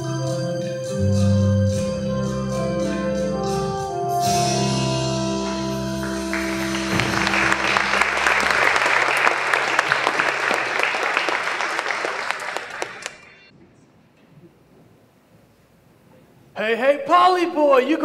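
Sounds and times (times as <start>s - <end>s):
organ-like keyboard chords: 0.0s - 9.5s
audience applause: 6.0s - 13.5s.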